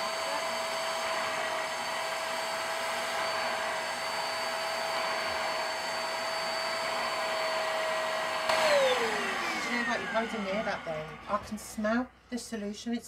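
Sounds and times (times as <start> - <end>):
carpet cleaner suction motor: 0.0 - 12.1
motor winding down: 8.4 - 11.7.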